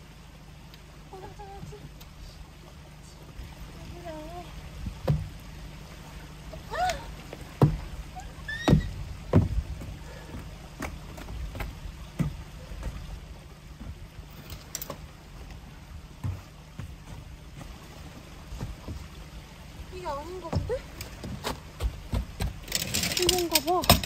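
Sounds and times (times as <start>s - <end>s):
knocks on wooden deck: 5.0s - 5.4s, 7.6s - 7.9s, 8.6s - 9.9s
tent poles and fabric handled: 13.8s - 15.6s, 20.0s - 24.0s.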